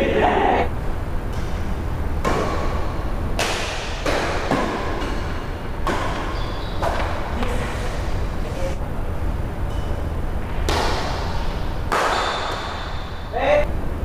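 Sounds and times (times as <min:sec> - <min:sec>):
steady low hum: 0:00.0 - 0:14.0
rackets striking shuttlecock: 0:02.2 - 0:07.2, 0:10.7 - 0:13.2.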